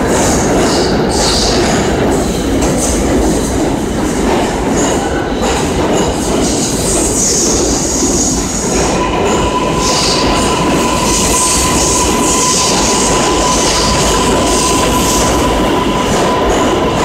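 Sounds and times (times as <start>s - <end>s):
train wheels rumbling on rails: 0.0s - 17.0s
steady high tone: 8.8s - 17.0s.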